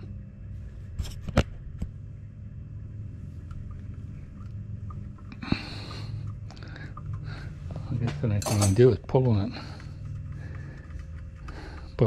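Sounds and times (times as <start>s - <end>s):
steady low rumble: 0.0s - 12.0s
ringing metallic clink: 8.4s - 8.8s.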